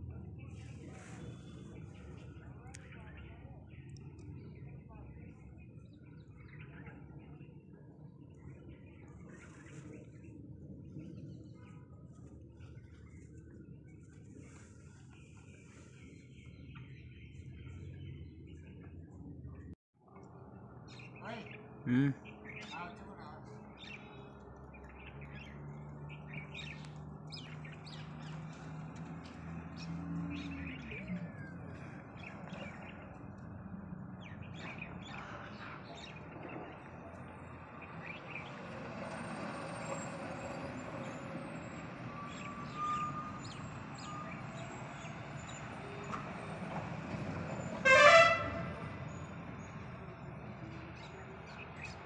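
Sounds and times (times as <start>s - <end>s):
birds chirping: 0.2s - 52.0s
vehicle horn toot: 47.8s - 48.8s.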